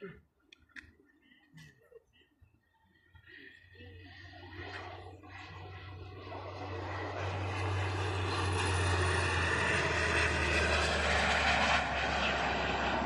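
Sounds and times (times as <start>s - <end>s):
high engine whine: 2.9s - 13.0s
model jet flying past: 3.4s - 13.0s.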